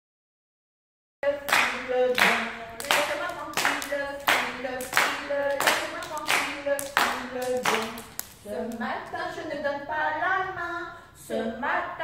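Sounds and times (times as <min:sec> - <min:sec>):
group clapping in rhythm: 0:01.2 - 0:08.8
voices singing: 0:01.2 - 0:11.8.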